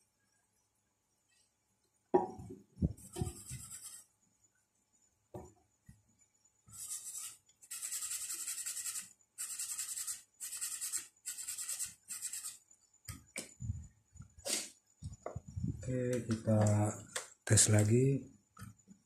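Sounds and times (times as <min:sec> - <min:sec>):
brush scrubbing circuit board: 0:03.0 - 0:04.1, 0:06.7 - 0:12.6.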